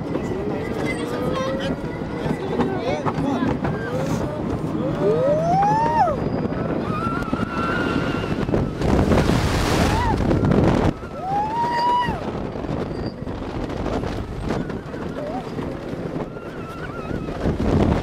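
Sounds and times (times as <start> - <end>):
roller coaster rumbling on track: 0.0 - 18.0
wind on microphone: 0.0 - 18.0
riders screaming: 11.0 - 12.3.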